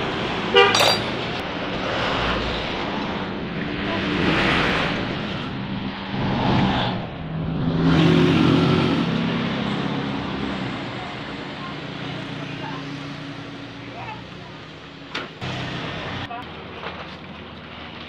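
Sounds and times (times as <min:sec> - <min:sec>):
vehicle engine noise: 0:00.0 - 0:18.0.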